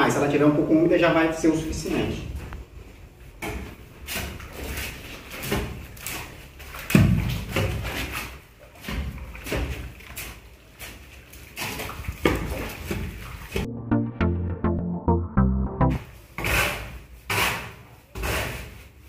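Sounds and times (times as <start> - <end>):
hoe chopping and scraping screed: 16.4 - 18.9.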